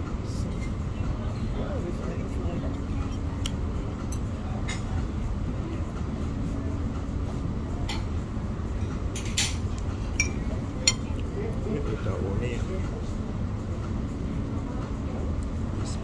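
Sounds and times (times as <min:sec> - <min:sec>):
restaurant room noise hum: 0:00.0 - 0:16.0
tableware clinking: 0:10.2 - 0:11.1.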